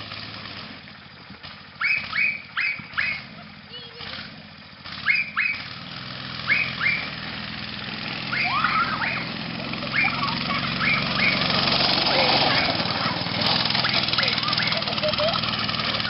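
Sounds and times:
go-kart engine running: 0:00.0 - 0:16.0
small dog yapping: 0:01.8 - 0:03.3, 0:05.1 - 0:05.6, 0:13.8 - 0:14.9.

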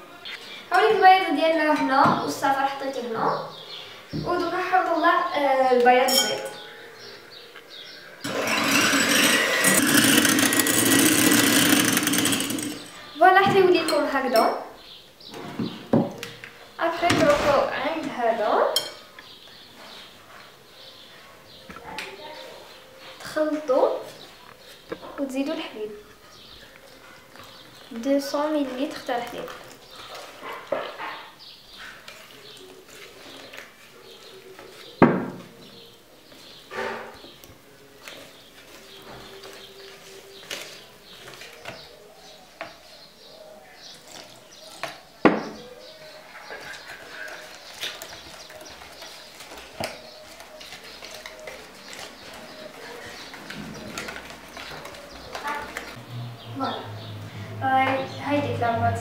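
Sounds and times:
electric hand mixer whisking: 0:08.3 - 0:13.0
whisking batter in plastic bowl: 0:46.2 - 0:55.9.

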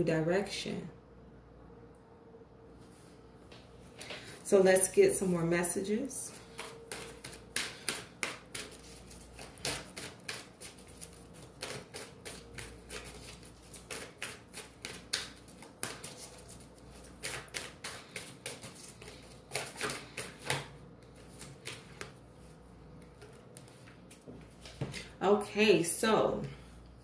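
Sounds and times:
cards being shuffled: 0:06.3 - 0:22.2.

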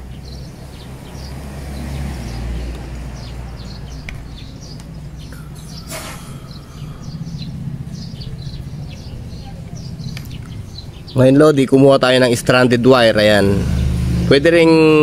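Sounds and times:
small birds chirping: 0:00.0 - 0:15.0
steady low rumble: 0:03.5 - 0:14.6.

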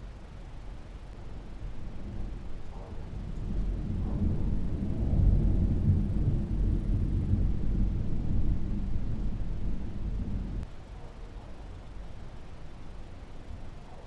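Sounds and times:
distant thunder rolling: 0:01.2 - 0:10.7.

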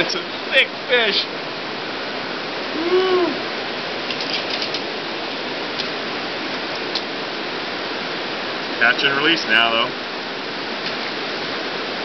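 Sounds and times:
river water rushing: 0:00.0 - 0:12.0
person calling: 0:02.7 - 0:03.4.

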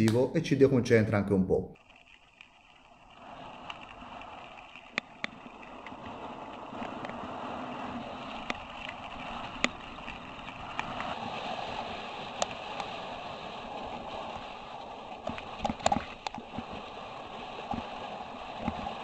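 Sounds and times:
stones clicking and bike rattling: 0:01.8 - 0:07.3, 0:08.0 - 0:11.2, 0:15.2 - 0:16.8
bike tyres rolling on gravel: 0:01.8 - 0:19.0.

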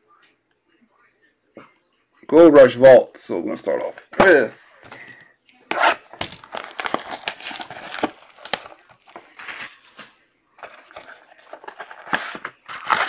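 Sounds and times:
shrink wrap tearing and crinkling: 0:05.8 - 0:13.0.

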